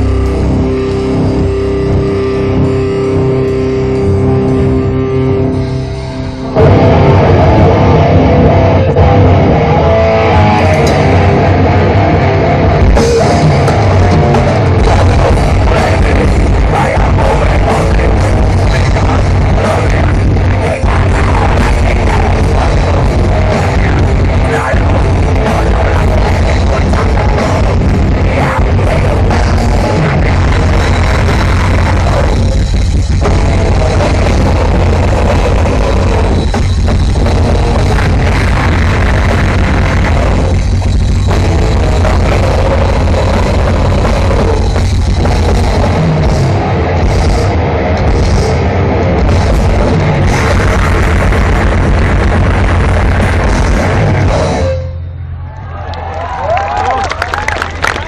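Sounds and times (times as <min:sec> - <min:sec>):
distorted guitars: 0:00.0 - 0:58.0
fast dense drumming: 0:10.5 - 0:54.6.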